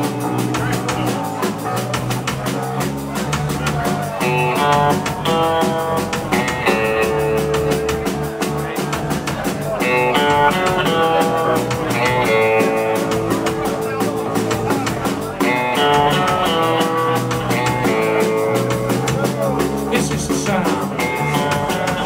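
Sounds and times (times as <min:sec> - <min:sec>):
bass guitar: 0:00.0 - 0:22.0
distorted electric guitar chords: 0:00.0 - 0:22.0
drum kit: 0:00.0 - 0:22.0.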